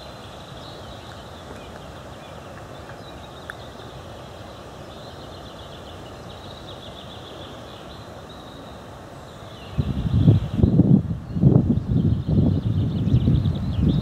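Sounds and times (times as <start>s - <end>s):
birds singing faintly: 0.0s - 14.0s
wind buffeting microphone: 9.7s - 14.0s.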